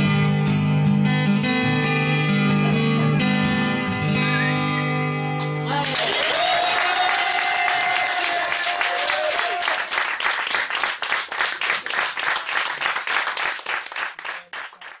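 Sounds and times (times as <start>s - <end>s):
audience clapping: 5.7s - 15.0s.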